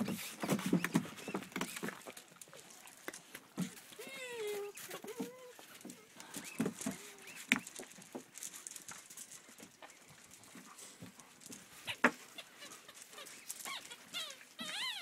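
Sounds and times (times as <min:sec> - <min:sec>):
puppies scuffling: 0:00.0 - 0:15.0
puppy whining: 0:03.9 - 0:06.0, 0:11.8 - 0:15.0.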